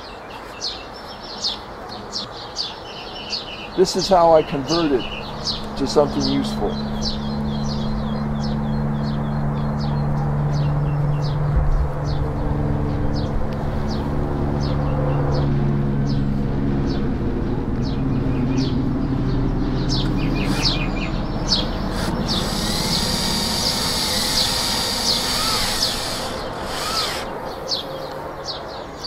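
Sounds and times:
cordless drill motor hum: 0:20.4 - 0:20.8, 0:21.7 - 0:27.4.

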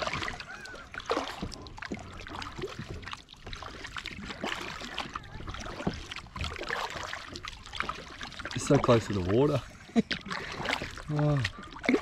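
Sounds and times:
water splashing and trickling: 0:00.0 - 0:12.0.

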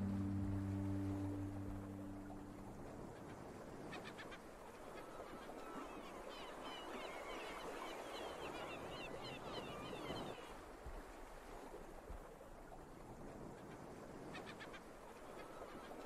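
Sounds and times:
steady noise wash: 0:00.0 - 0:03.8
quiet hiss: 0:00.0 - 0:03.9.

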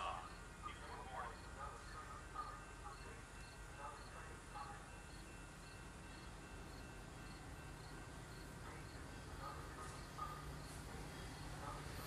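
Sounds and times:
insect chirping high-pitched: 0:01.3 - 0:09.1.

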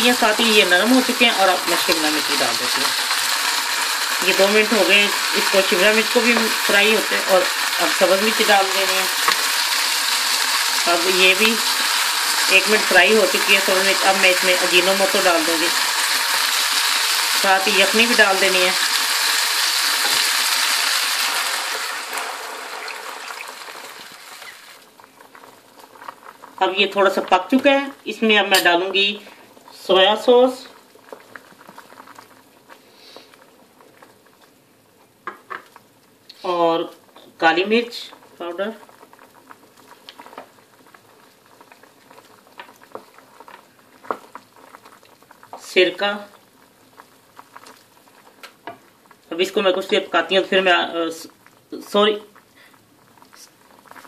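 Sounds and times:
wooden spoon stirring: 0:00.0 - 0:29.3
food sizzling in hot oil: 0:00.0 - 0:33.3
stock bubbling in a pan: 0:00.0 - 0:36.3, 0:38.1 - 0:50.7, 0:51.3 - 0:54.0
stock being poured: 0:09.0 - 0:25.0.

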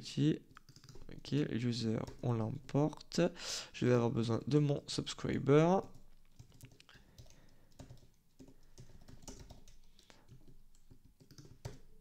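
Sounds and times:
keyboard typing: 0:00.5 - 0:01.3, 0:01.9 - 0:02.8, 0:05.7 - 0:12.0.

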